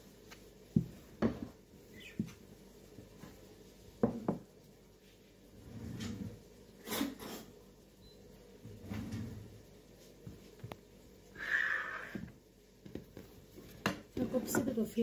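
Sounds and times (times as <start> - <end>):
knocks on worktop: 4.0 - 4.4.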